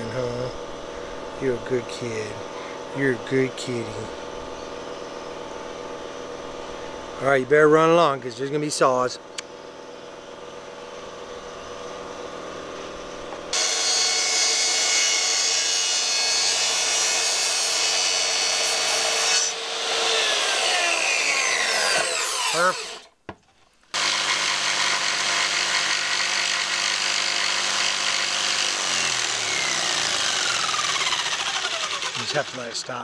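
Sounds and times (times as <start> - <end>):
jigsaw cutting plywood: 13.5 - 23.1, 23.9 - 33.0
track saw cutting plywood: 13.5 - 23.1, 24.0 - 33.0.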